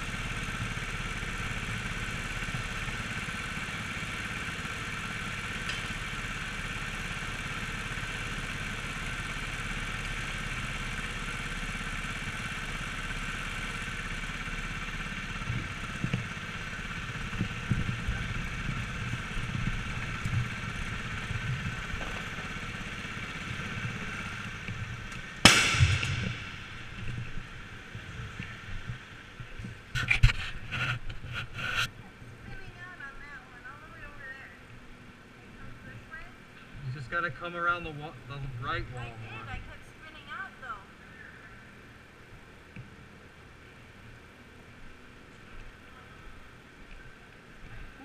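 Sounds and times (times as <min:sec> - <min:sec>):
go-kart engine hum: 0:00.0 - 0:48.0
sharp loud bang: 0:25.4 - 0:27.4.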